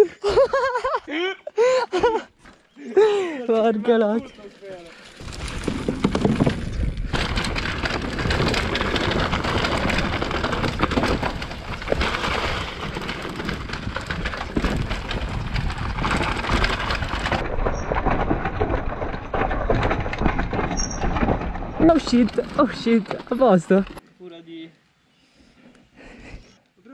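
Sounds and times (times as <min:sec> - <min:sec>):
tyres on dirt: 0:02.0 - 0:24.0
bike frame and chain rattling: 0:03.8 - 0:24.0
wind rumbling over microphone: 0:05.2 - 0:24.0.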